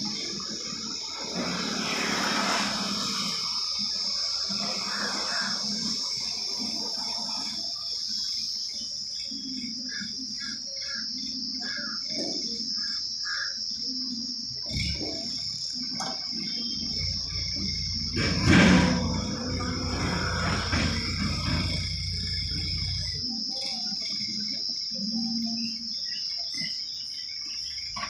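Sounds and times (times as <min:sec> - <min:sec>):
insects chirring: 0:00.0 - 0:28.0
low rumble: 0:16.8 - 0:23.3.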